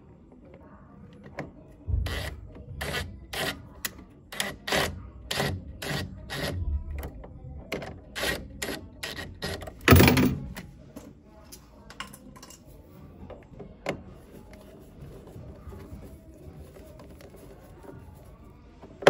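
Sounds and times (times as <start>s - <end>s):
rubber hose rubbing and scraping: 14.1s - 19.0s.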